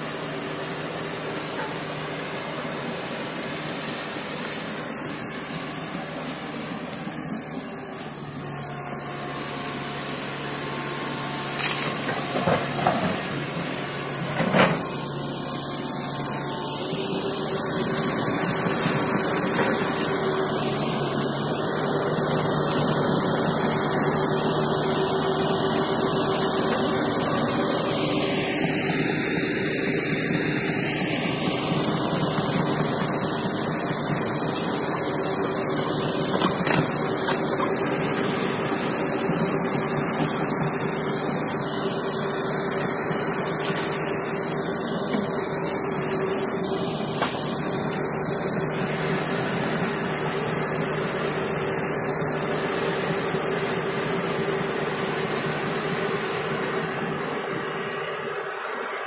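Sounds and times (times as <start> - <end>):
excavator diesel engine: 0.0 - 59.0.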